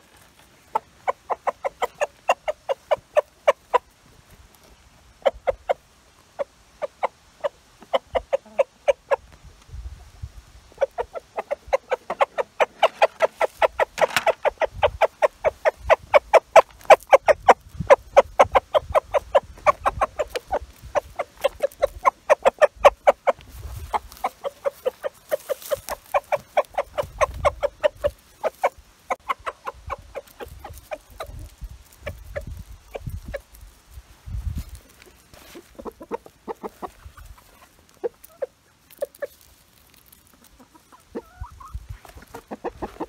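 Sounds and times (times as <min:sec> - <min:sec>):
rooster clucking rapidly: 0:00.7 - 0:03.9, 0:07.9 - 0:09.2, 0:10.8 - 0:33.5, 0:35.6 - 0:39.3, 0:40.6 - 0:43.0.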